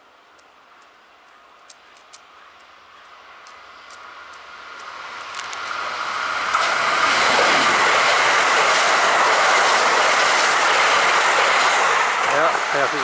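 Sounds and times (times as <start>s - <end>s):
train wheels rushing on rails: 3.1s - 13.0s.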